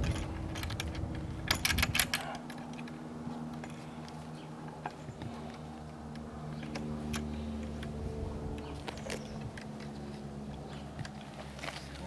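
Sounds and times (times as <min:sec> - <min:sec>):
metal clicks and clatter: 0:00.0 - 0:03.0.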